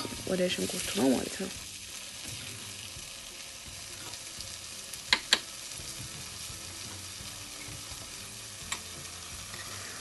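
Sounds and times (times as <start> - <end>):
oil sizzling in a skillet: 0.0 - 10.0.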